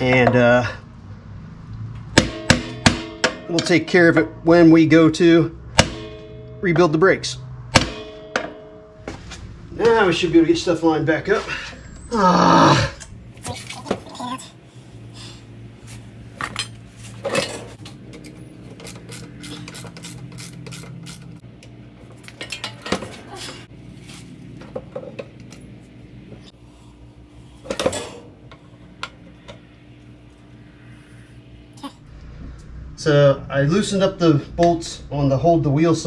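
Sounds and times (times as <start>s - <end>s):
low hum: 0.7s - 22.7s, 23.6s - 36.0s
metal knocks: 2.1s - 4.0s, 5.7s - 6.8s, 7.6s - 10.0s.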